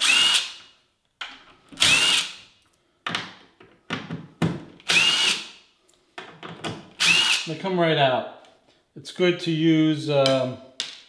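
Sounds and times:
cordless screw gun whining: 0.0s - 0.6s, 1.8s - 2.4s, 4.8s - 5.5s, 7.0s - 7.5s.

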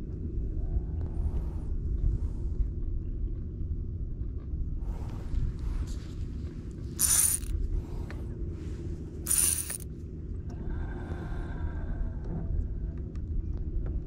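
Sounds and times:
steady low rumble: 0.0s - 14.0s
fishing reel cranking whir: 7.0s - 7.5s, 9.3s - 9.8s
short hissing swishes: 7.0s - 7.5s, 9.3s - 9.8s.

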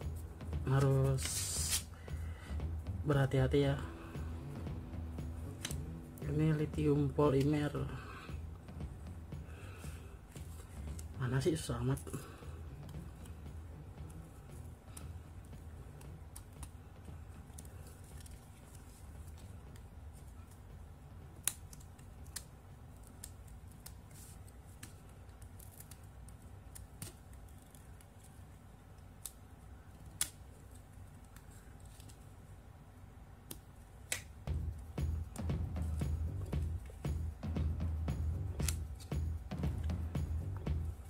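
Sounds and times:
steady low hum: 0.0s - 41.0s
sharp plastic snaps: 21.3s - 28.2s, 29.0s - 32.2s, 33.4s - 34.5s.

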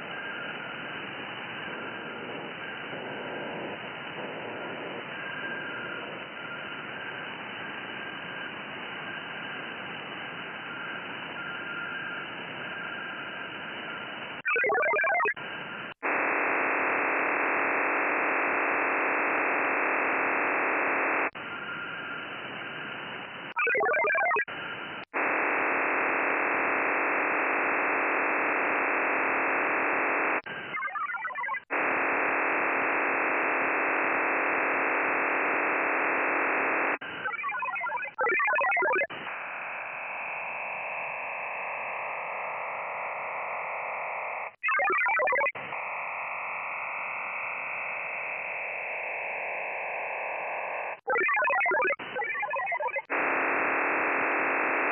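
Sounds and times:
warbling multi-tone bursts: 14.5s - 15.4s, 23.5s - 24.5s, 30.7s - 31.6s, 37.2s - 39.1s, 44.6s - 45.6s, 50.5s - 53.1s.

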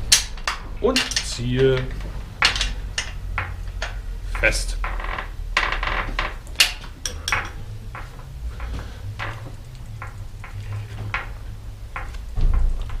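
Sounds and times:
wrench clinking on axle nut: 6.6s - 8.1s.

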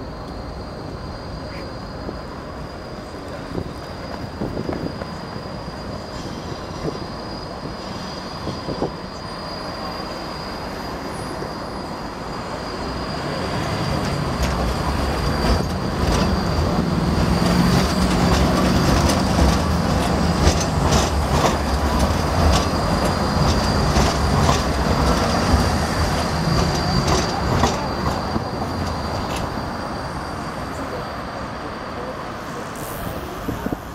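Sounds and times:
tram rumble: 0.0s - 33.9s
wheels clacking on rails: 11.2s - 33.9s.

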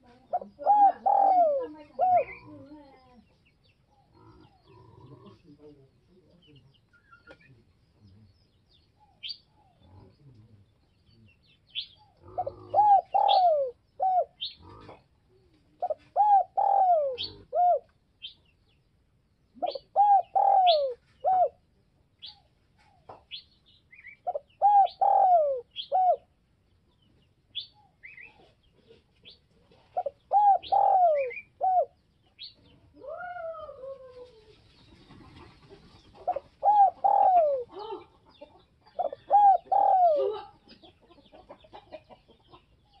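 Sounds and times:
dove cooing: 0.0s - 3.2s, 11.8s - 18.0s, 19.5s - 21.6s, 24.2s - 26.4s, 28.0s - 32.0s, 33.0s - 41.2s.

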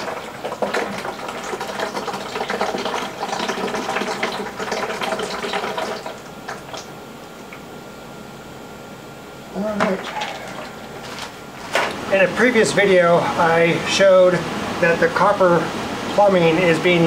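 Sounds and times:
water splashing into plastic bucket: 0.0s - 6.9s.

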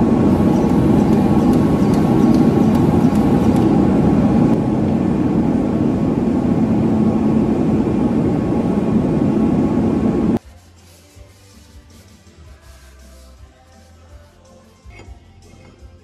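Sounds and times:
loud mechanical drone: 0.0s - 10.4s.

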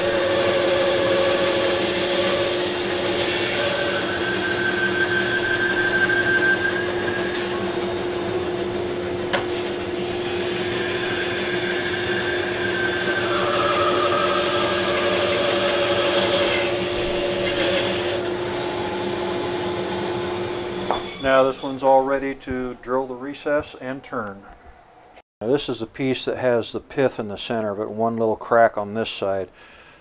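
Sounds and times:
bandsaw cutting wood: 0.0s - 21.5s.

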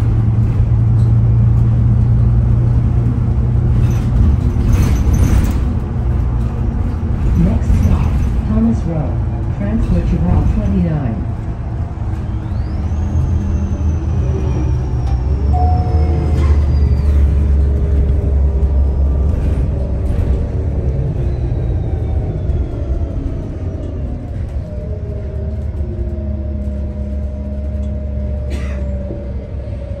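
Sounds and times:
bus engine and road rumble: 0.0s - 30.0s
transmission whistling: 12.0s - 17.6s.

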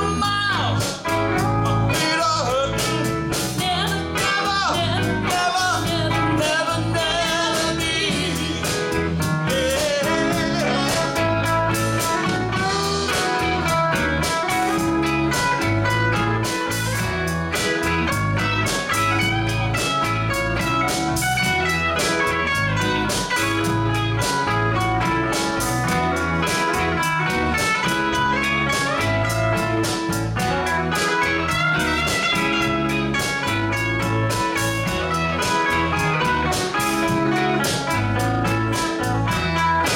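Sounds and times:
blues-rock band playing: 0.0s - 39.9s
woman singing: 3.6s - 8.9s, 9.5s - 11.1s.

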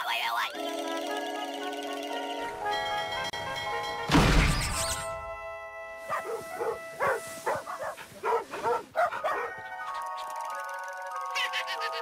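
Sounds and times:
background music: 0.0s - 12.0s
cartoon dogs barking: 6.1s - 10.3s.

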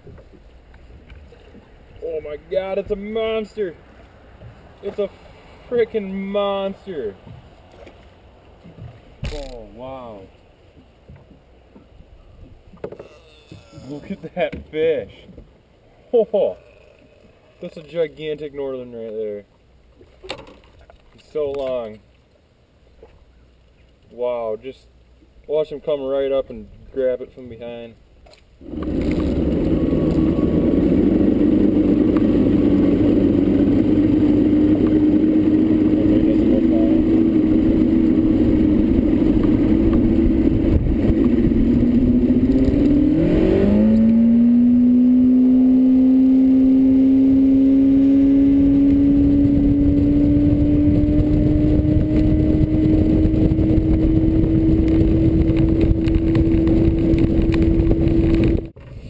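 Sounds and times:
rushing wind and water: 0.0s - 16.0s, 17.3s - 59.0s
outboard motor running at speed: 28.6s - 58.9s.

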